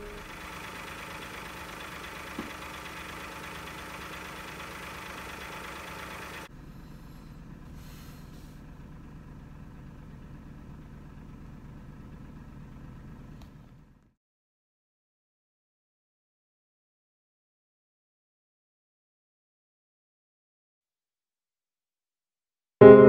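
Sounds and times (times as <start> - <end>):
vehicle engine idling: 0.0 - 14.2.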